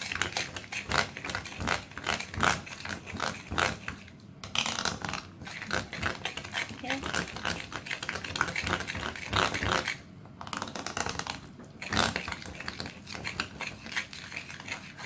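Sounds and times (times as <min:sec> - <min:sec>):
spoon scraping glass bowl: 0:04.8 - 0:10.0, 0:11.8 - 0:15.0.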